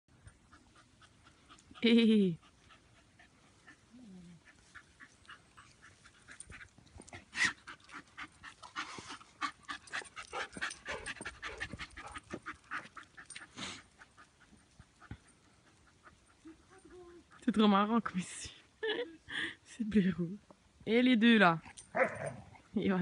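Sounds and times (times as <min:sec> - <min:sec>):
dog panting: 0:00.1 - 0:17.9.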